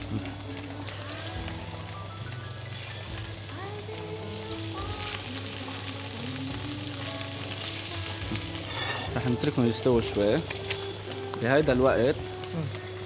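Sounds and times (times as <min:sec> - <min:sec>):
fish sizzling in a pan: 0:00.0 - 0:13.0.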